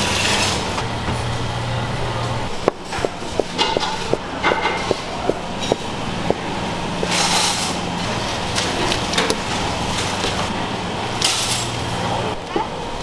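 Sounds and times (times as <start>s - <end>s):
knife chopping on wooden board: 2.6s - 6.4s.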